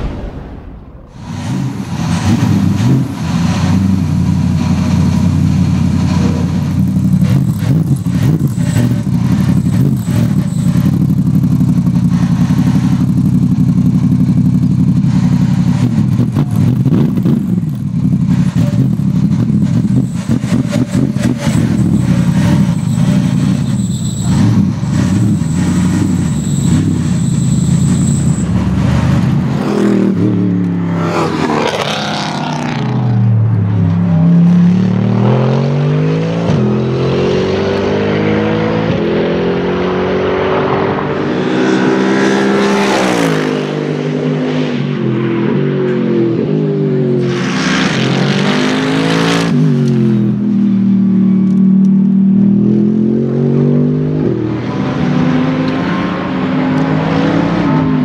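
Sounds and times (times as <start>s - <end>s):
race car engine idling loudly: 1.1s - 29.7s.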